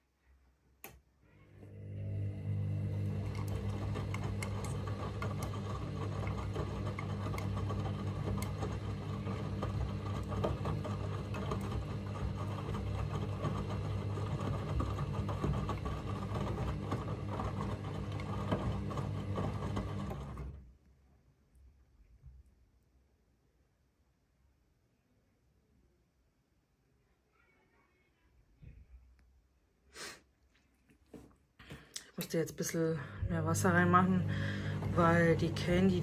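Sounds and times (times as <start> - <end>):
washing machine motor humming: 1.3 - 20.8, 31.6 - 36.0.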